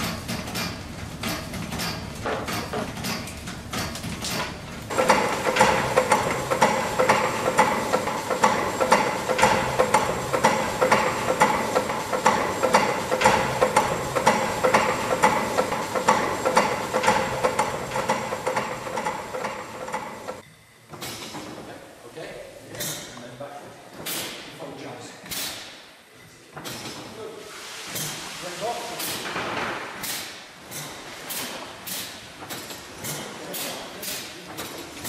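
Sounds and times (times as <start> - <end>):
steam engine mechanical clatter: 0.0 - 20.4, 29.0 - 35.0.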